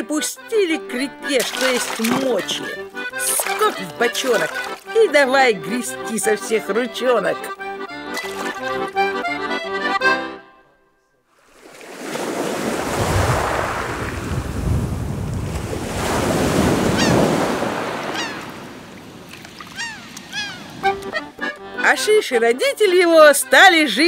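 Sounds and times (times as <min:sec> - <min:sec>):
accordion music: 0:00.0 - 0:11.1, 0:19.8 - 0:24.0
sea waves surging: 0:01.4 - 0:06.4, 0:11.4 - 0:21.4
short high cries: 0:18.1 - 0:18.5, 0:19.7 - 0:21.2.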